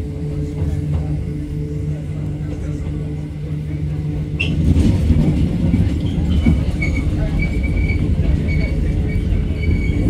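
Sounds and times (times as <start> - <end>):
train wheels rumbling on rails: 0.0 - 10.0
high wheel squeals: 6.0 - 10.0.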